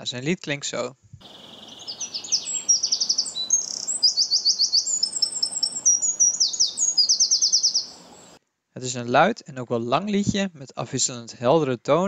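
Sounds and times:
wren singing trills: 0:01.2 - 0:08.4.

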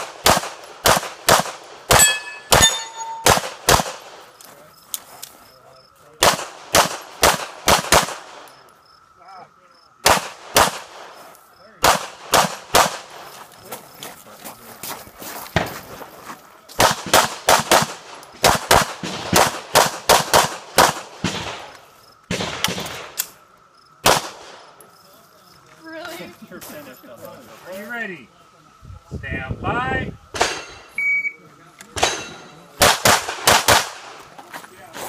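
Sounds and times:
rapid pistol shots: 0:00.0 - 0:04.2, 0:06.2 - 0:08.5, 0:10.0 - 0:11.2, 0:11.8 - 0:13.2, 0:16.8 - 0:21.7, 0:22.3 - 0:23.2, 0:24.0 - 0:24.6, 0:32.0 - 0:34.2.

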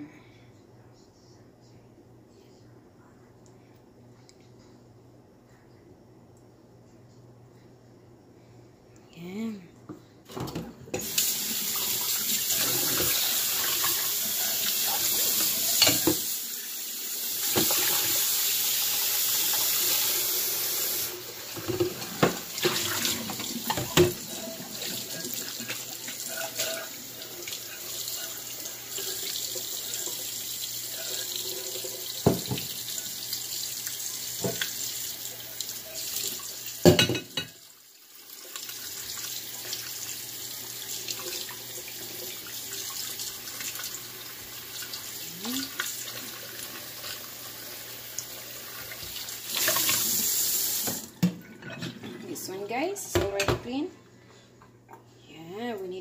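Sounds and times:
tap running into metal sink: 0:32.2 - 0:32.8.

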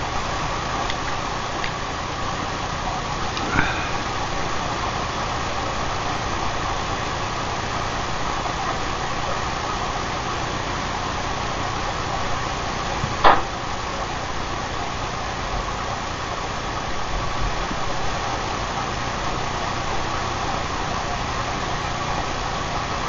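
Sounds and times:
mechanical noise with low hum: 0:00.0 - 0:23.0.

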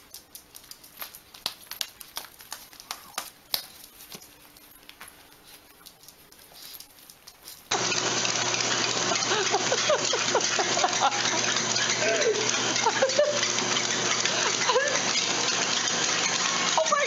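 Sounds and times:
treadmill whirring: 0:07.7 - 0:17.0.

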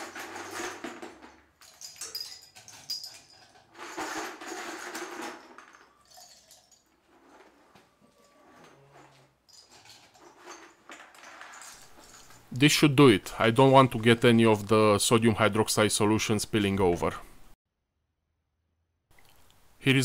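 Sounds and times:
metal scraps clinking and rattling: 0:00.0 - 0:12.8.

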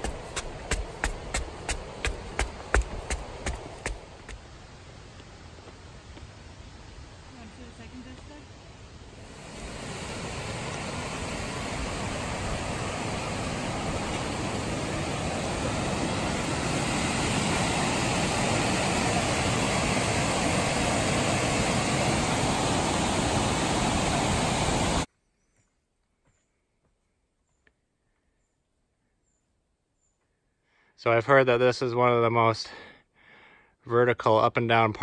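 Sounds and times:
river rushing over rapids: 0:09.2 - 0:25.1.

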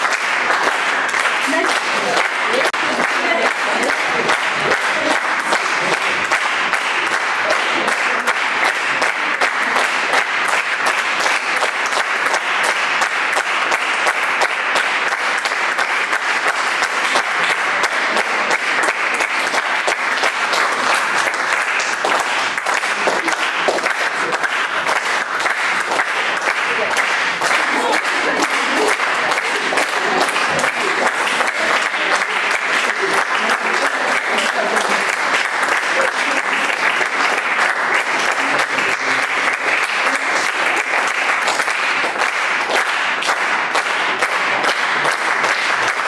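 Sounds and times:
audience applauding: 0:00.0 - 0:46.0.

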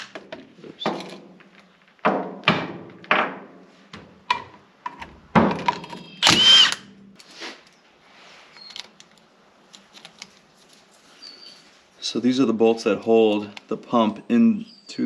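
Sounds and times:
impact wrench bursts: 0:06.2 - 0:06.8.

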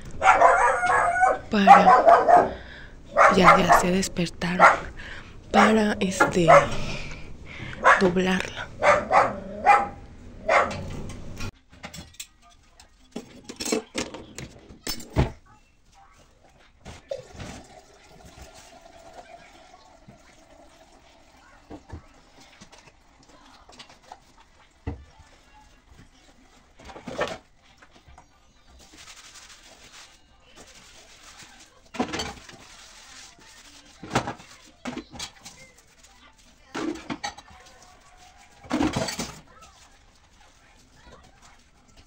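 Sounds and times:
dog barking: 0:00.1 - 0:06.9, 0:07.7 - 0:10.9.

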